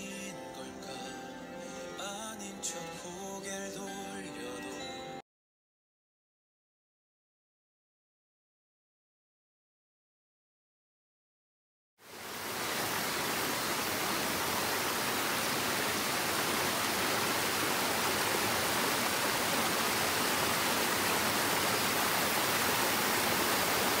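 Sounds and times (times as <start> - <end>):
stream rushing over rocks: 12.0 - 24.0.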